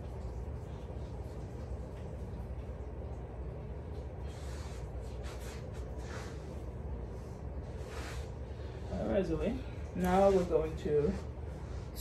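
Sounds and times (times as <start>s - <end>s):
low room hum: 0.0s - 12.0s
hairbrush swishing through hair: 4.3s - 6.7s, 7.5s - 9.4s, 10.0s - 12.0s.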